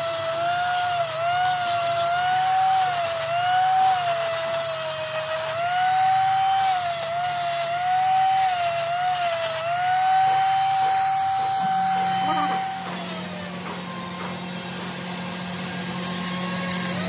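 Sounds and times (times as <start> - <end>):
die grinder whining on steel: 0.0 - 17.0.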